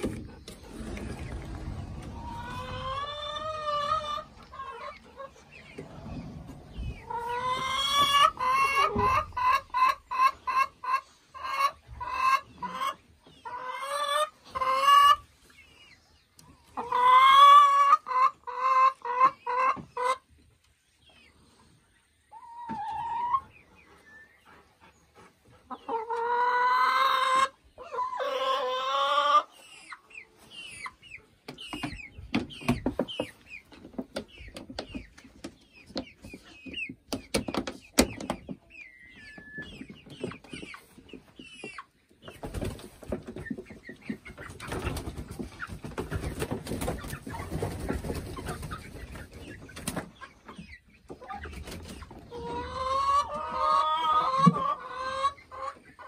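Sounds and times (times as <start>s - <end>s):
hens cackling loudly: 0.5s - 15.3s, 16.7s - 20.3s, 25.7s - 29.6s, 52.1s - 56.0s.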